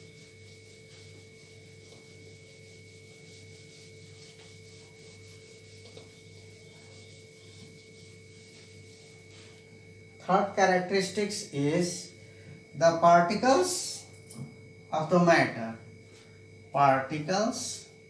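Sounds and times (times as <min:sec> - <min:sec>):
eraser rubbing on whiteboard: 0:00.0 - 0:09.7
steady hum: 0:00.0 - 0:18.0
thin high whine: 0:00.0 - 0:18.0.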